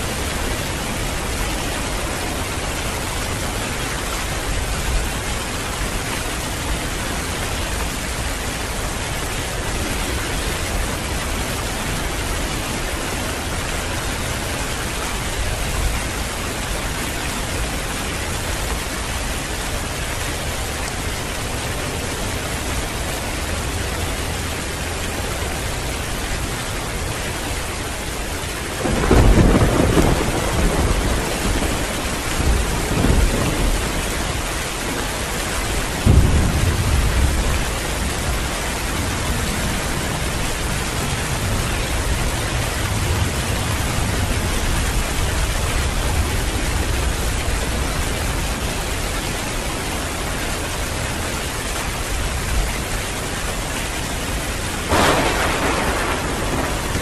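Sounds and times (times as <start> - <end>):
heavy rain falling: 0.0 - 57.0
thunder rumbling: 28.7 - 48.3, 54.8 - 57.0.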